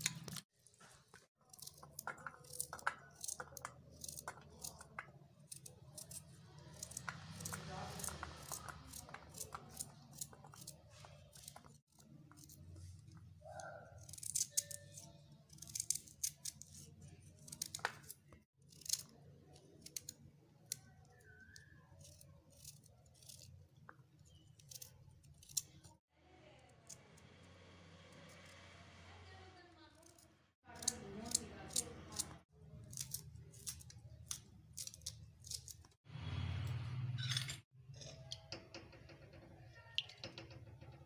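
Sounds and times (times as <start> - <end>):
knife cutting carrot: 0.0 - 26.0, 30.0 - 36.0.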